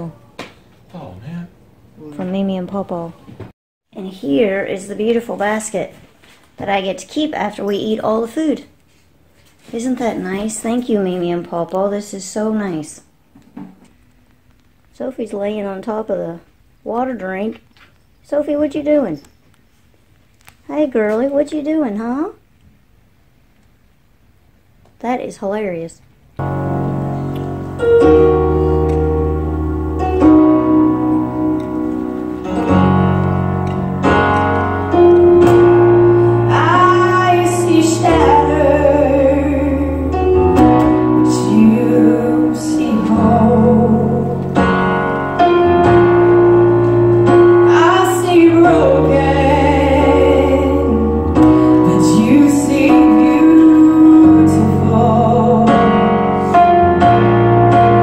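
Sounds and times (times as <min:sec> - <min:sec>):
electronic keyboard chords: 0:26.4 - 0:58.0
woman singing: 0:36.5 - 0:40.4, 0:41.2 - 0:44.7, 0:47.7 - 0:56.2.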